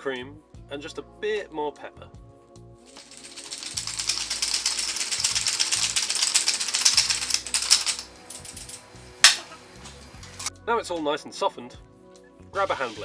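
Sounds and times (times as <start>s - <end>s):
pepper mill grinding: 2.9s - 10.5s.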